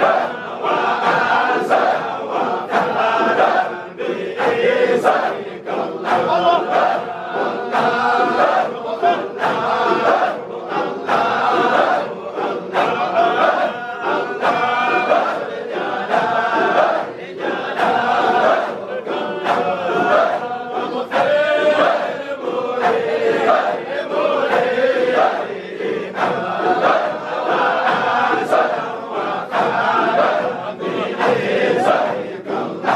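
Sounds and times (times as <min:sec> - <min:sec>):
men chanting: 0:00.0 - 0:32.9.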